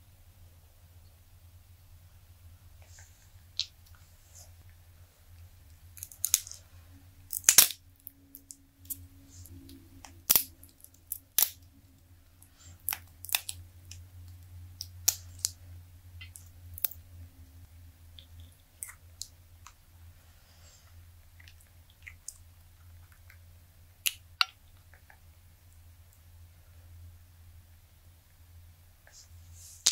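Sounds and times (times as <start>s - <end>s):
silicone mold crackling and snapping: 2.8s - 17.0s, 21.3s - 25.3s.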